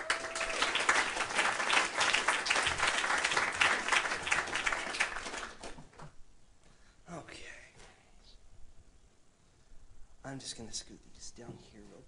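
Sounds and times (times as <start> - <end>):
audience applauding: 0.0 - 6.0.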